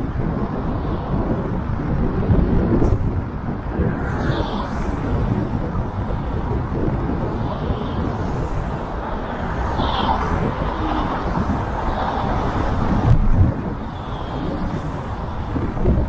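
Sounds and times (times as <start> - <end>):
car road and wind noise: 0.0 - 16.0
car passing: 3.4 - 16.0.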